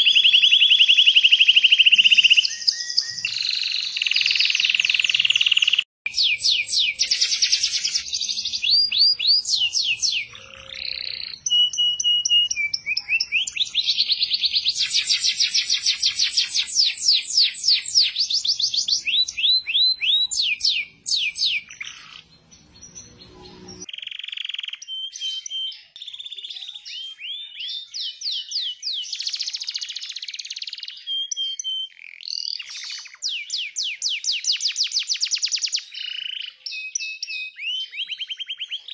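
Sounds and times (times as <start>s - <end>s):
canaries singing trills: 0.0s - 38.9s
quieter bird singing: 0.0s - 38.9s.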